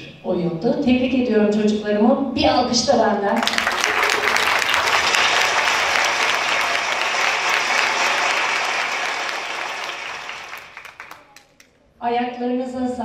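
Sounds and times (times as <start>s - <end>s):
audience applauding: 3.4s - 11.7s.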